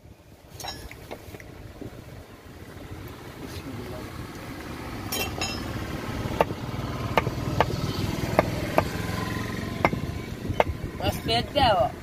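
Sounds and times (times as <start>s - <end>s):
low engine hum: 0.0s - 12.0s
cleaver chopping on wooden block: 6.3s - 10.8s.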